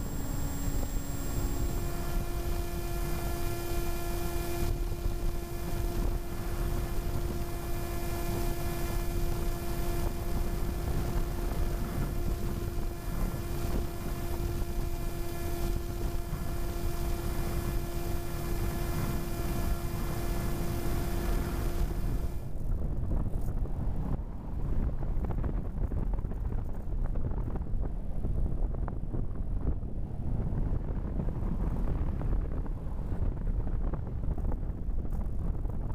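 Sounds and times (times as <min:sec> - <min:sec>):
electric motor and propeller whine: 0:00.0 - 0:23.8
wind rumble on microphone: 0:00.0 - 0:35.9.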